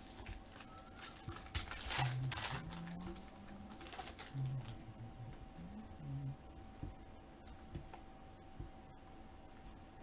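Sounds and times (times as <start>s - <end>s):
foil wrapper crinkling: 0.0s - 4.8s.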